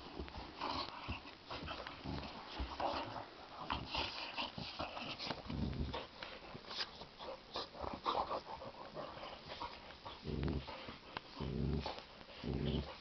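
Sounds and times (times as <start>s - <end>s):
dog growling: 10.0s - 13.0s.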